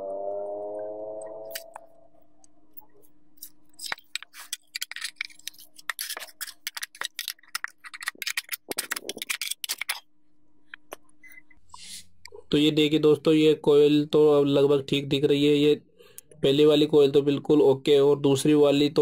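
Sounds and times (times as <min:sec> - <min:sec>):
metal tool clicking and scraping: 0:03.4 - 0:10.0.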